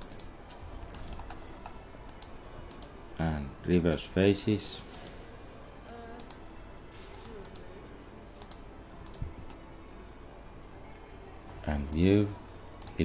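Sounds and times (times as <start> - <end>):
computer mouse and keyboard clicks: 0.0 - 3.0, 6.2 - 6.4, 7.1 - 7.7, 8.4 - 9.6, 12.7 - 13.0
steady low hum: 0.0 - 13.0.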